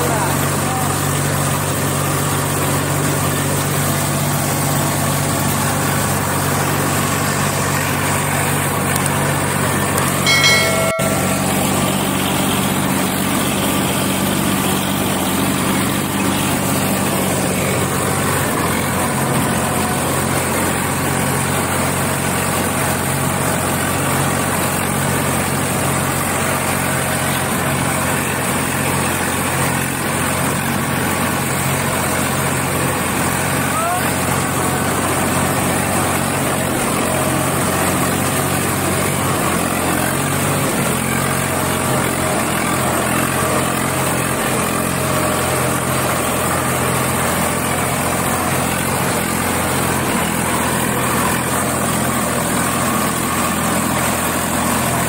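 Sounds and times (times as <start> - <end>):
tractor diesel engine running: 0.0 - 55.0
brief pitched tone: 10.2 - 13.2.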